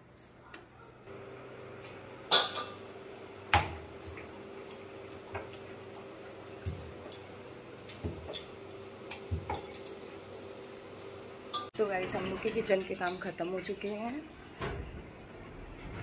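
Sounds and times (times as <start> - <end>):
steel utensils clinking: 2.3 - 10.1, 11.5 - 11.7.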